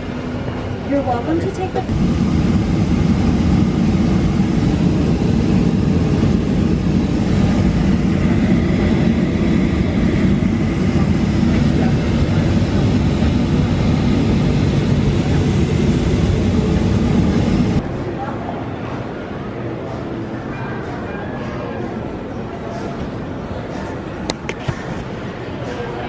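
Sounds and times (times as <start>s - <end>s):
jet engine cabin rumble: 0.0s - 17.8s.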